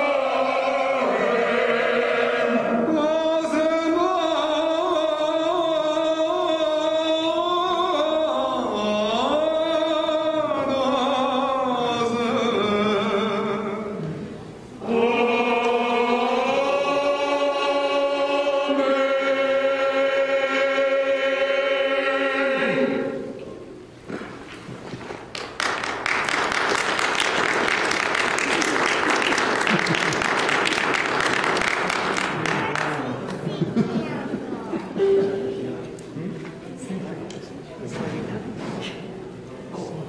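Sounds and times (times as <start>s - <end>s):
mixed choir singing: 0.0s - 23.4s.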